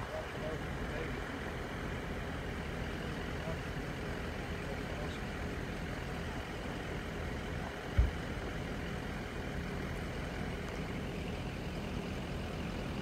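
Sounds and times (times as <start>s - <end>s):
low thump: 7.9s - 8.2s.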